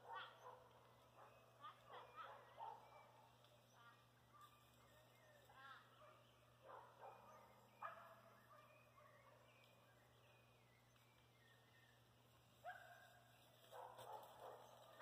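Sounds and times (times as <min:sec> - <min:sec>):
faint fowl calls: 0:00.0 - 0:07.1.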